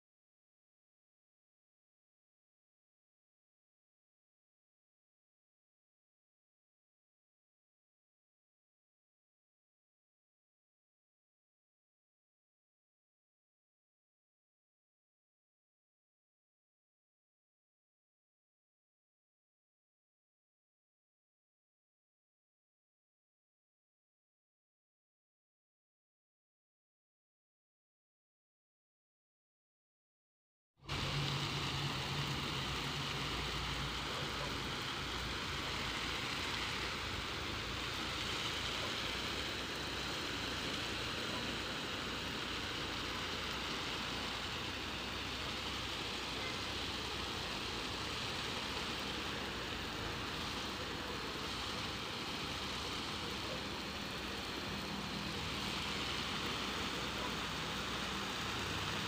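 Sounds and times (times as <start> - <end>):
water spray hissing: 30.8 - 59.0.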